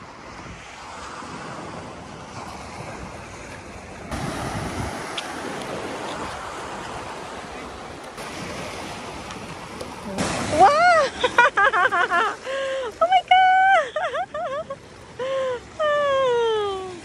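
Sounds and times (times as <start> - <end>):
wind on microphone: 0.0 - 11.1
waves washing over rocks: 0.0 - 16.1.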